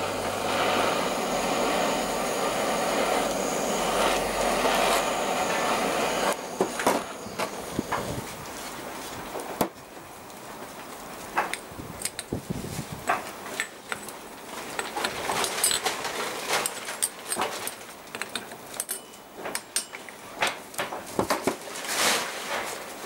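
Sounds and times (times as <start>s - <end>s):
pliers clicking and scraping on metal: 16.6s - 20.2s.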